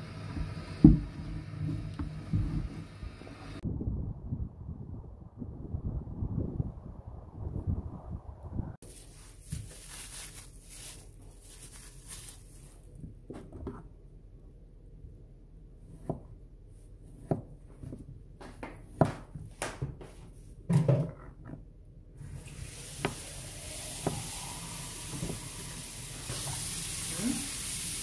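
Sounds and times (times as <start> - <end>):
knife chopping on plastic board: 17.2 - 19.4
steady hiss: 22.3 - 28.0.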